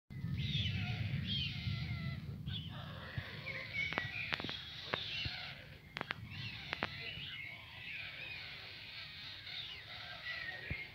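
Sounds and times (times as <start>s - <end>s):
low rumble: 0.1s - 9.0s
songbirds singing and chirping: 0.1s - 10.9s.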